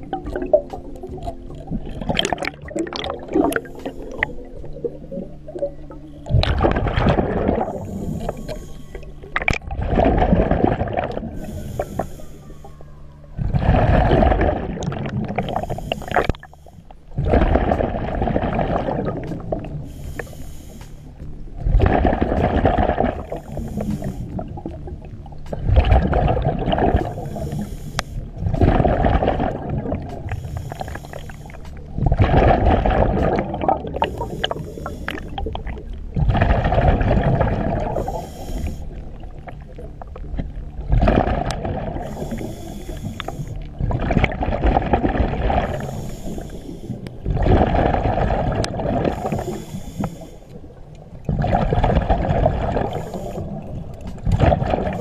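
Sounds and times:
exhaled bubbles underwater: 0.0 - 55.0
low hum: 0.0 - 55.0
regulator hiss: 7.5 - 9.4, 11.3 - 13.2, 15.4 - 17.2, 19.3 - 21.3, 23.1 - 25.0, 27.0 - 28.4, 30.2 - 32.0, 33.9 - 35.7, 37.9 - 39.4, 42.0 - 43.7, 45.7 - 47.0, 49.1 - 50.8, 52.8 - 53.7.

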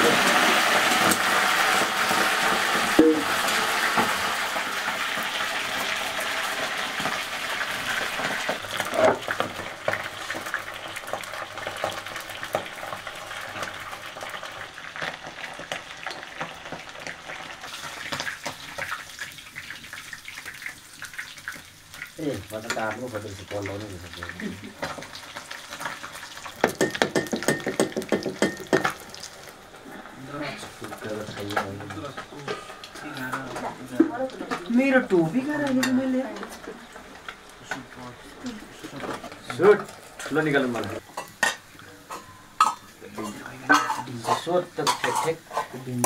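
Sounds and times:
food sizzling in hot oil: 0.0 - 46.0
stirring knocks in pan: 26.6 - 29.2.

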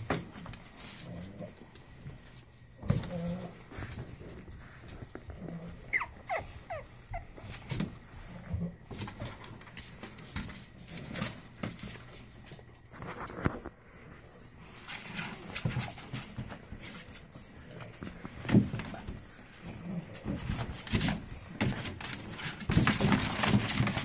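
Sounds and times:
paws clicking on plastic: 0.0 - 24.0
puppies whimpering: 5.7 - 7.4.

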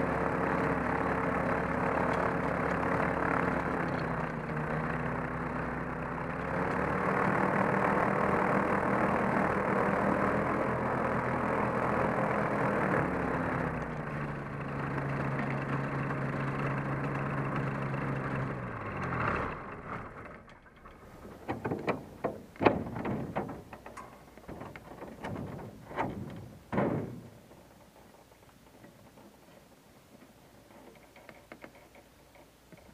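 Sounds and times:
sharp clicks and knocks: 20.3 - 32.9.

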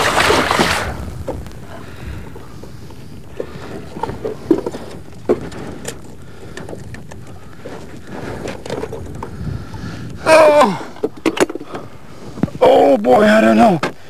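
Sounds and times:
knocks of fish in boat: 0.0 - 1.0
background hiss: 0.0 - 14.0
person exclaiming: 10.2 - 10.9.

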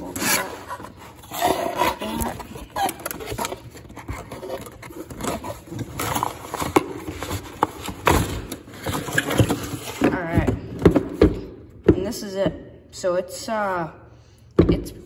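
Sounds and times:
cardboard packaging scraping and rustling: 0.0 - 10.4.

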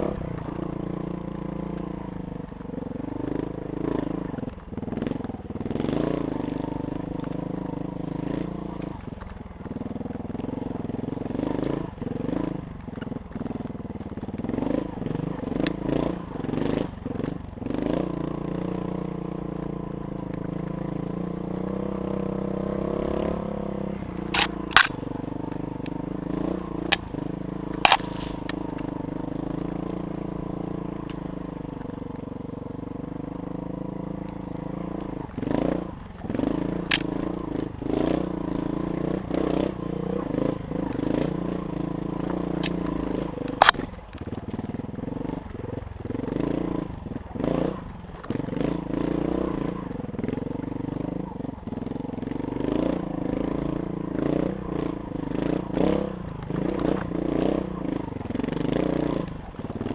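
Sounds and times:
dirt bike engine revving: 0.0 - 59.9
sharp cracks: 24.2 - 25.2, 26.8 - 28.9, 42.6 - 44.3.

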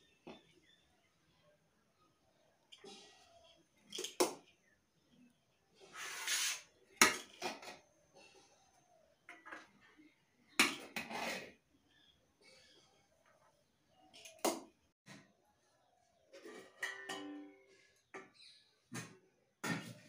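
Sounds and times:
metal spoon scraping a pot: 5.8 - 7.7, 10.9 - 11.6.

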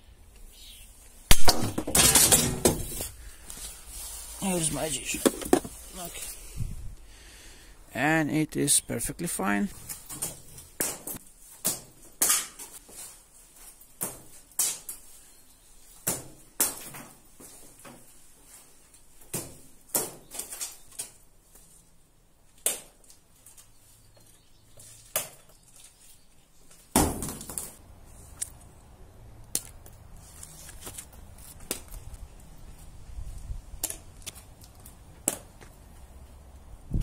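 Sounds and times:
wind rumble on microphone: 6.5 - 7.0, 36.8 - 37.0.

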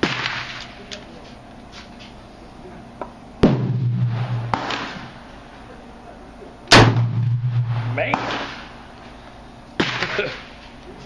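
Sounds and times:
shotgun blast: 0.0 - 0.6, 3.4 - 5.2, 6.7 - 8.8, 9.8 - 10.2
sharp crack: 0.0 - 0.8, 3.4 - 5.2, 6.7 - 8.8, 9.8 - 10.4
low ringing rumble: 3.6 - 5.1, 6.8 - 8.4.

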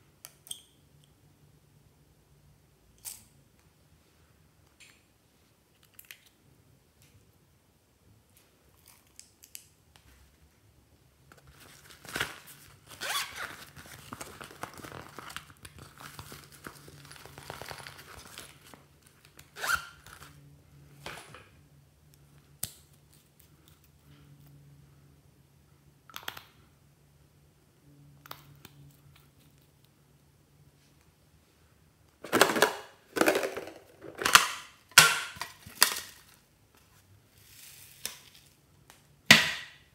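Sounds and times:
zipper being pulled open: 12.9 - 13.6, 19.6 - 20.1.

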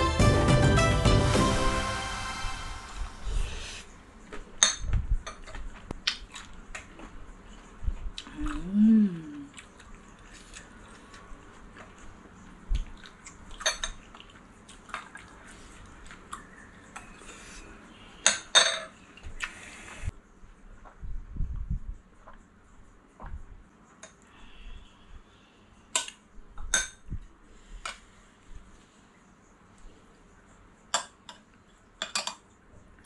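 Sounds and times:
cutlery clinking on dishes: 4.6 - 5.6, 18.2 - 19.0, 30.9 - 32.4
person chewing food: 5.4 - 17.6
person humming mmm: 8.2 - 9.6.

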